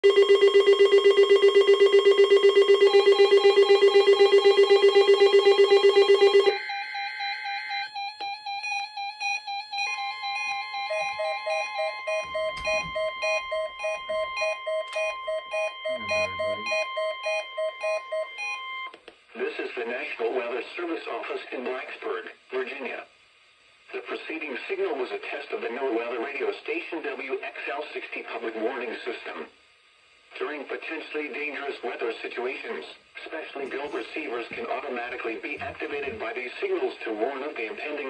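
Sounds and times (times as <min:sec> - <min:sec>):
overlapping weather radio beeps: 0:00.0 - 0:18.9
loud pulsing low beep: 0:10.8 - 0:18.9.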